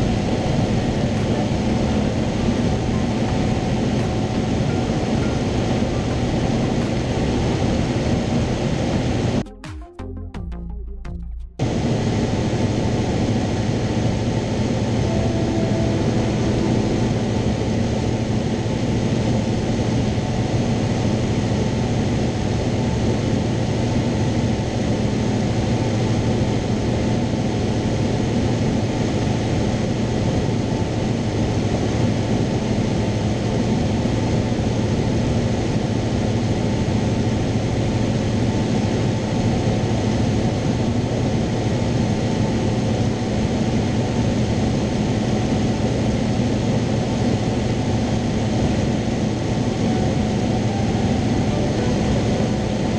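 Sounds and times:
aircraft engine drone: 0.0s - 52.9s.

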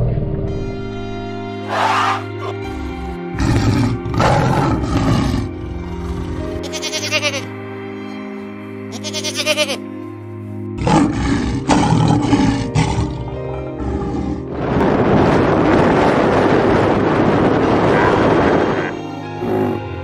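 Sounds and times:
background music: 0.0s - 20.0s
lion roaring and growling: 1.6s - 6.7s, 10.8s - 15.5s, 17.7s - 20.0s
camel grumbling: 1.7s - 7.5s, 10.8s - 14.6s, 17.9s - 20.0s
goat bleat: 6.6s - 7.5s, 8.9s - 9.9s.

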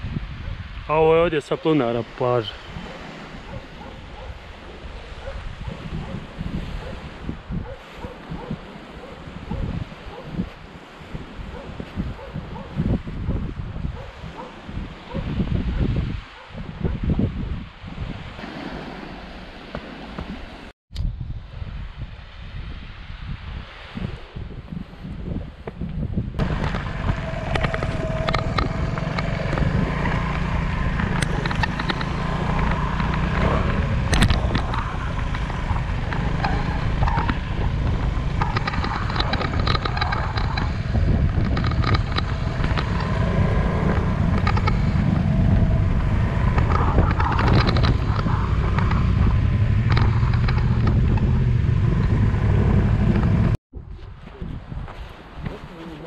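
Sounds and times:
wind buffeting microphone: 0.0s - 56.0s
low rumble: 26.4s - 53.6s
gravel rattling and crunching: 26.4s - 56.0s.

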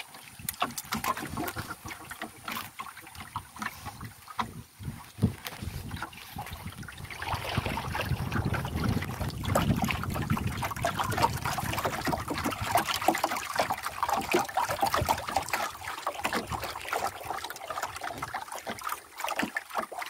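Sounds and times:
small waves lapping against canoe: 0.0s - 20.0s
wind rumble on microphone: 3.7s - 13.2s.

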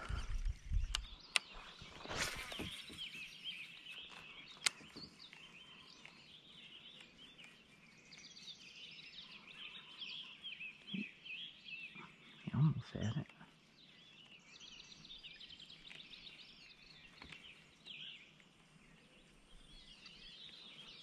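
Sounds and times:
small birds chirping: 0.0s - 21.0s
sharp clicks: 0.8s - 1.6s, 4.1s - 6.2s.

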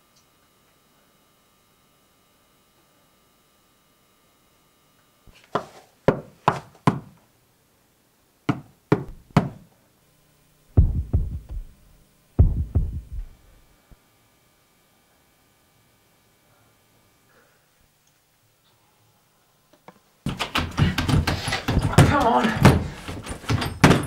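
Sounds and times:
sharp knocks: 10.8s - 11.7s, 12.4s - 13.3s, 20.3s - 24.0s
heavy deep thuds: 10.8s - 11.8s, 12.4s - 13.5s.

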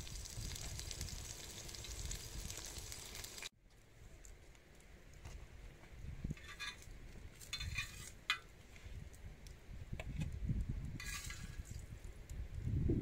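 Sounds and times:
metal utensil scraping griddle: 6.3s - 8.5s, 11.0s - 11.8s.

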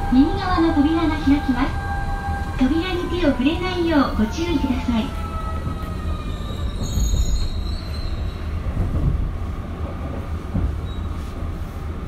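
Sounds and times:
wheel flanges squealing: 0.0s - 8.7s.

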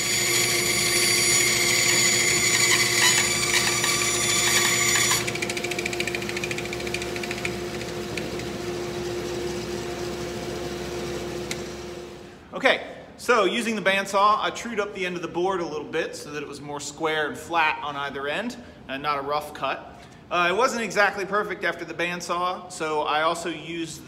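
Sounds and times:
bandsaw cutting wood: 0.0s - 8.5s.

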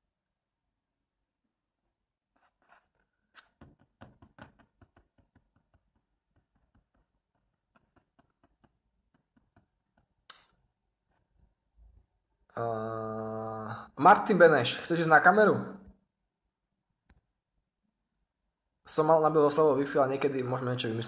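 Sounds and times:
faint clicks and taps: 3.4s - 10.6s.

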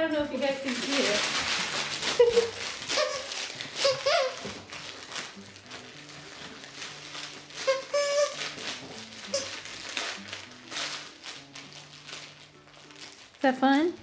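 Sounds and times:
dog chewing a plush toy: 1.3s - 13.2s
toy squeaks: 2.2s - 4.5s, 7.6s - 8.6s, 9.2s - 9.6s.

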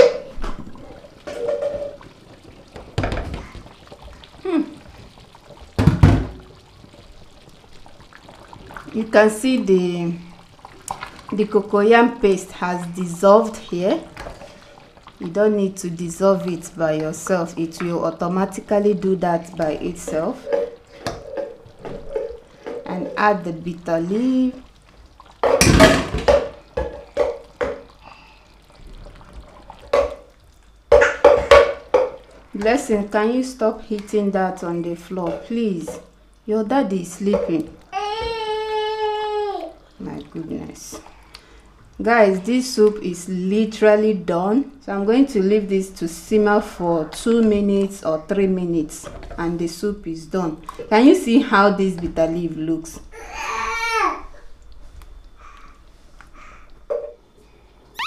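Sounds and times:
soup sloshing: 0.0s - 43.2s.

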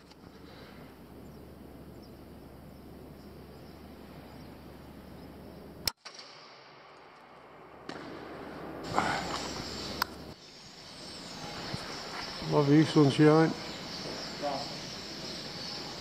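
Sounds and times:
steady low hum: 0.0s - 5.9s, 6.6s - 16.0s
air rifle shot: 6.0s - 7.0s, 7.7s - 10.0s.

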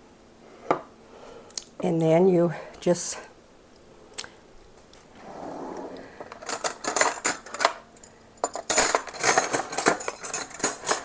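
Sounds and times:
cutlery clinking: 8.5s - 11.0s.

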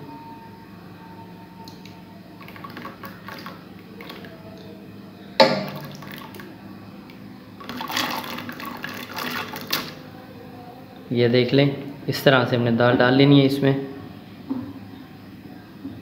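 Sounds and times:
lentils pattering into water: 2.4s - 4.4s, 5.5s - 6.5s, 7.6s - 10.0s.

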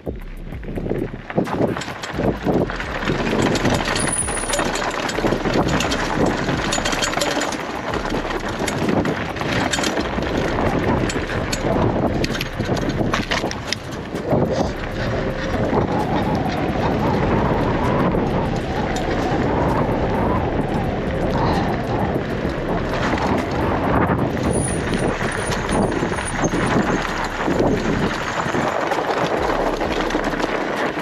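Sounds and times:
bicycle tyres rumbling on gravel: 0.0s - 31.0s
bike rattling and clicking: 0.0s - 31.0s.

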